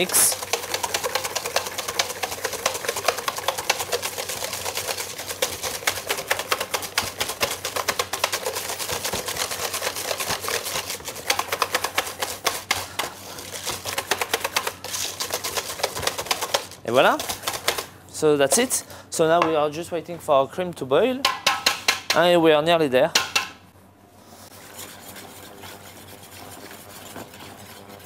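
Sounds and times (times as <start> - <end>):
whisk clicking against metal bowl: 0.0 - 13.1, 13.7 - 17.8.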